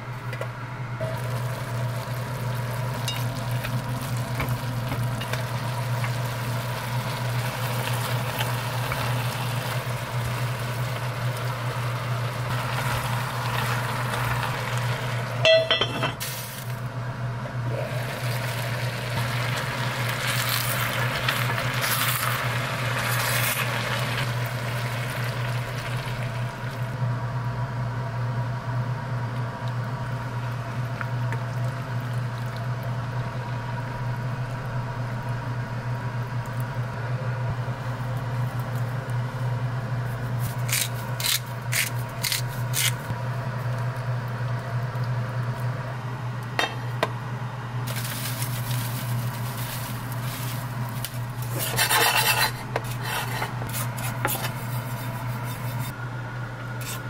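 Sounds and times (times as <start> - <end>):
steady low hum: 0.0 - 57.0
wire strainer clinking on pot: 15.4 - 16.2.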